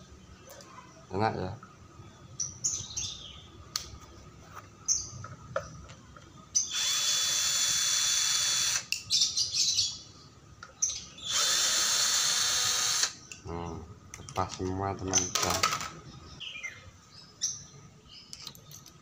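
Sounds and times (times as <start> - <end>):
cordless drill whining: 6.7 - 8.9, 11.3 - 13.2.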